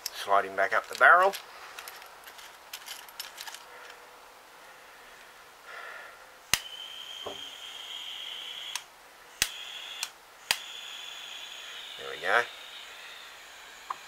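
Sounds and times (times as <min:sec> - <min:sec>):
sharp click: 0:06.5 - 0:07.4, 0:08.7 - 0:10.7
gas hiss with high whistle: 0:06.5 - 0:08.8, 0:09.4 - 0:14.0.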